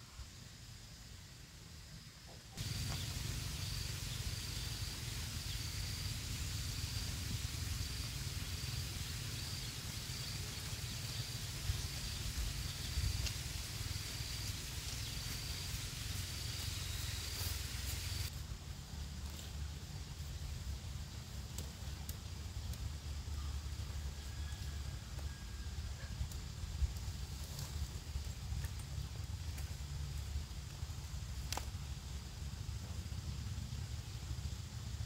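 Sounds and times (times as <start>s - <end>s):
hiss: 0.0s - 18.4s
insect chirping: 0.0s - 35.0s.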